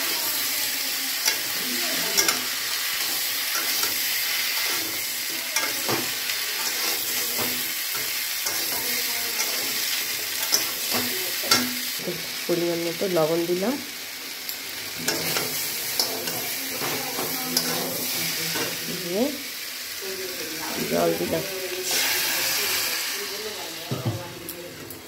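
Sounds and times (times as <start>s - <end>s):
vegetables sizzling in hot oil: 0.0s - 25.0s
metal spatula scraping a pan: 1.1s - 12.0s, 14.9s - 18.8s.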